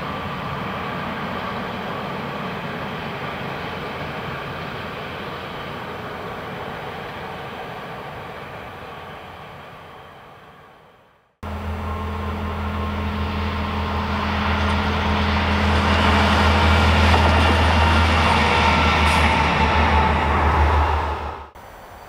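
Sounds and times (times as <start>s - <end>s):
rail and wheel noise: 0.0s - 22.0s
diesel engine drone: 11.4s - 22.0s.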